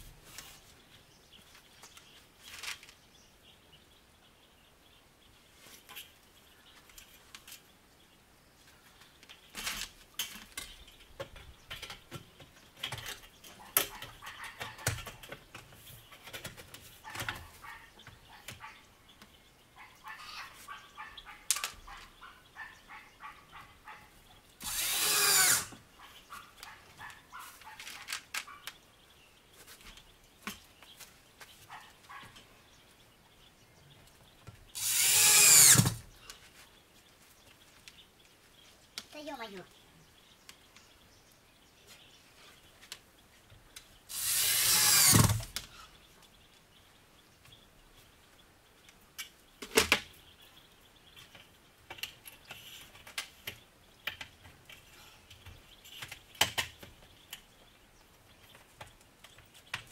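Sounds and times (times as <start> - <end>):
angle grinder cutting steel: 24.6 - 25.7, 34.8 - 36.0, 44.1 - 45.3.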